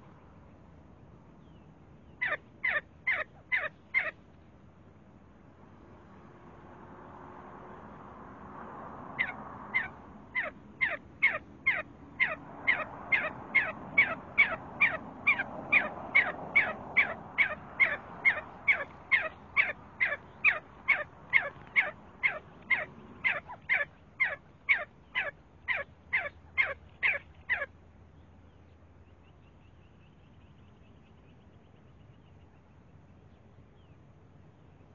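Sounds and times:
partridge calling: 2.2 - 4.2, 9.2 - 27.7.

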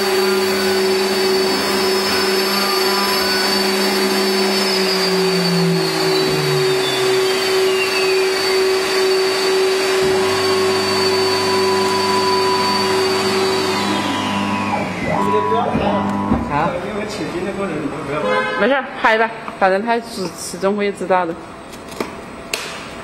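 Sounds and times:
tone gliding down in pitch: 0.0 - 16.8
router spindle and dust extraction drone: 0.0 - 18.2.

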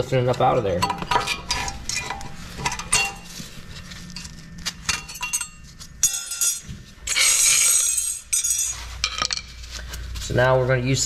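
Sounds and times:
harsh metal scraping: 0.4 - 9.6
metal clinks and scrapes: 0.8 - 9.8.

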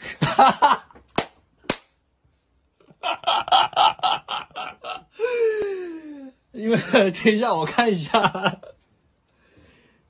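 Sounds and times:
man laughing: 0.0 - 1.0, 2.8 - 8.8.

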